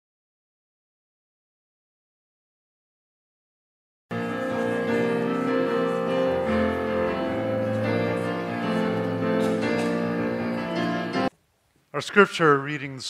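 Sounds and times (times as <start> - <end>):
slow keyboard chords: 4.1 - 11.3.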